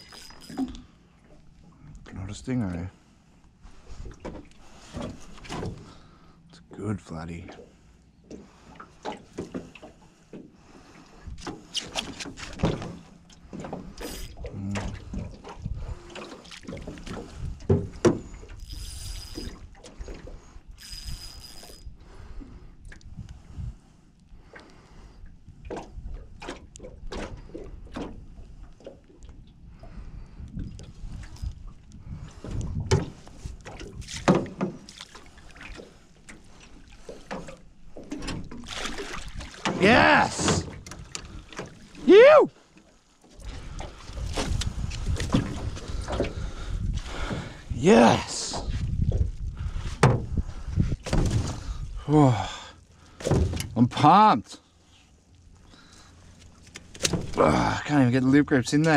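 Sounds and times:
water splashing: 33.8 - 42.3.

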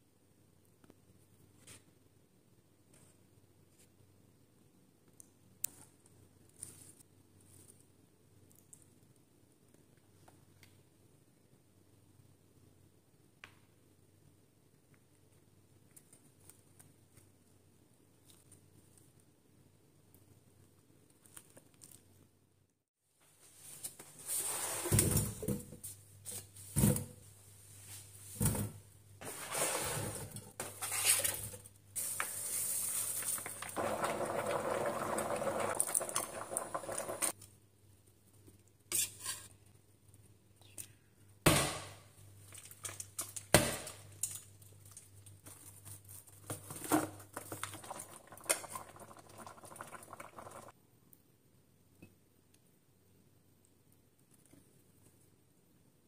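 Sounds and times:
pouring into pot: 32.0 - 37.4, 47.2 - 50.7.

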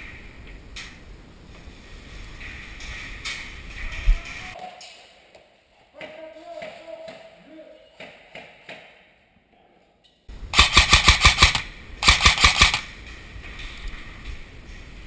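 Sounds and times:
airsoft rifle full-auto bursts: 10.6 - 12.9.

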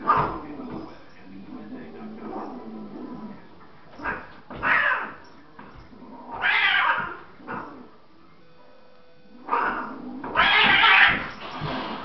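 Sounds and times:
cats yowling and hissing: 4.0 - 5.2, 5.9 - 7.9, 9.4 - 12.0.

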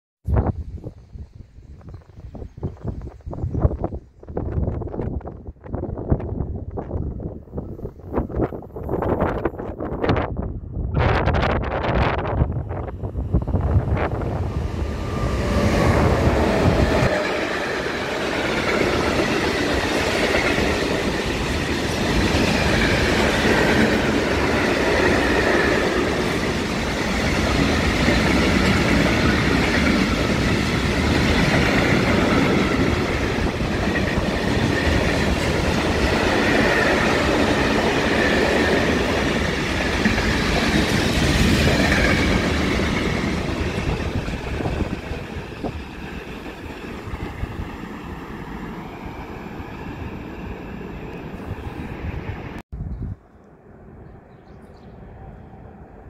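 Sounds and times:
wind buffeting microphone: 0.2 - 56.0
freight train wheels on rails: 11.1 - 52.6.

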